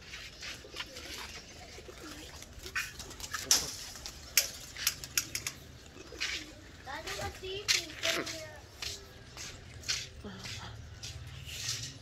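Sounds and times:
pigeons cooing: 0:00.0 - 0:07.3
sharp clicks and scrapes: 0:02.8 - 0:05.6.

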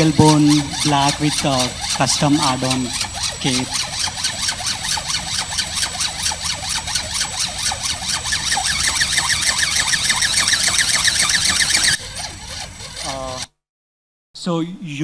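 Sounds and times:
robot wings beating: 0:00.0 - 0:12.0
motor whine: 0:00.0 - 0:13.5.

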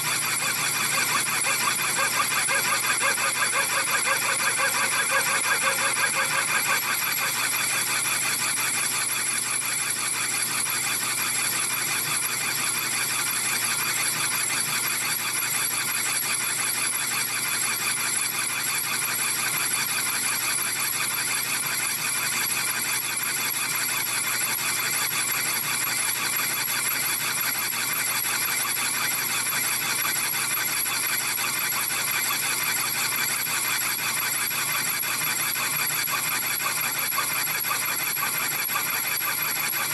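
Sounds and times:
lathe tool squealing on steel: 0:00.0 - 0:09.8, 0:24.9 - 0:39.9.

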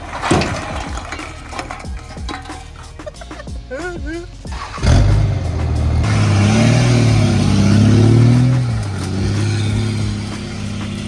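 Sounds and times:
tyres spinning in grass and dirt: 0:00.0 - 0:03.5
diesel truck engine revving: 0:04.2 - 0:11.0.

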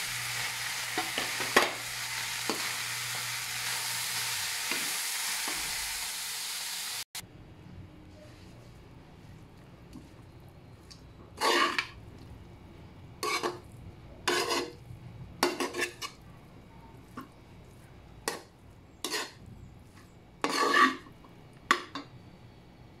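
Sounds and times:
metal spatula scraping a wok: 0:11.4 - 0:12.0, 0:13.2 - 0:13.6, 0:14.2 - 0:14.8, 0:15.4 - 0:16.2, 0:19.0 - 0:19.4, 0:20.0 - 0:21.1.

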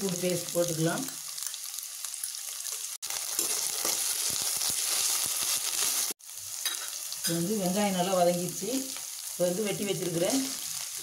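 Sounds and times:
food sizzling in hot oil: 0:00.0 - 0:11.0
spatula stirring and scraping: 0:02.2 - 0:06.9.

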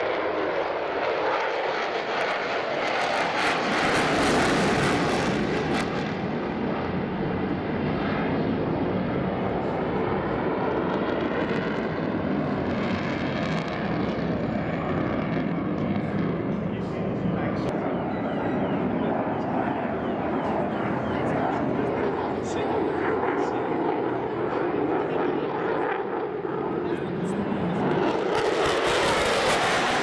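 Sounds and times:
jet engine roar overhead: 0:00.0 - 0:30.0.

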